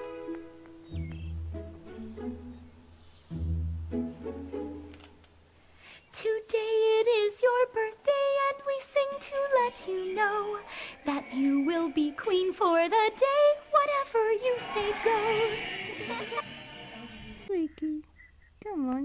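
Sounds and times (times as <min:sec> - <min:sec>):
woman singing a slow melody: 0:06.1 - 0:15.5.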